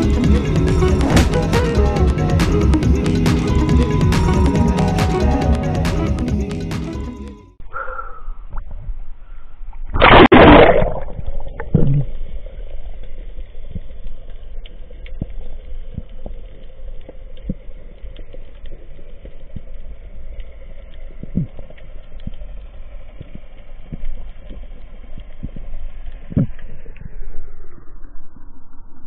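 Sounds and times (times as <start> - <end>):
low underwater hum: 0.0 - 29.0
clicks and crackles: 11.2 - 27.2.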